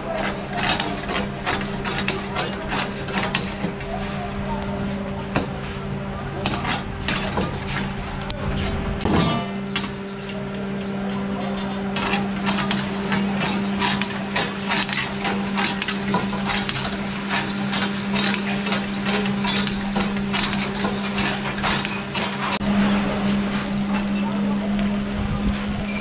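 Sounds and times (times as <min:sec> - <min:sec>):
knocking and clattering of food preparation: 0:00.0 - 0:03.9, 0:06.4 - 0:08.0, 0:11.1 - 0:22.6.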